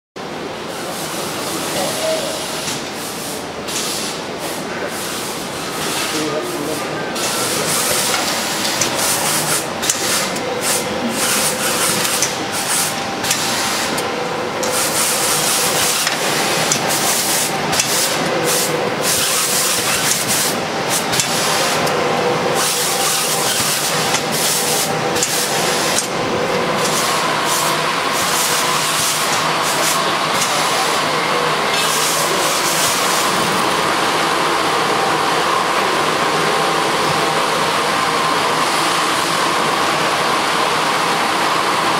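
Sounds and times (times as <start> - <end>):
shrink-wrapping machine hissing: 1.5 - 33.6.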